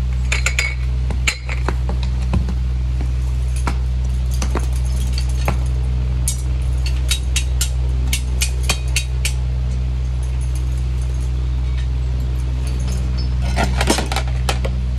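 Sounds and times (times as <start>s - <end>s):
steady low hum: 0.0s - 14.9s
metal tools clinking: 0.2s - 1.7s, 3.4s - 14.6s.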